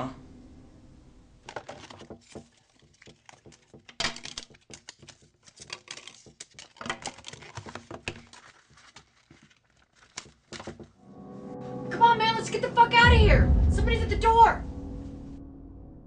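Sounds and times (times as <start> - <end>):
hands rummaging through cards: 1.4 - 11.0.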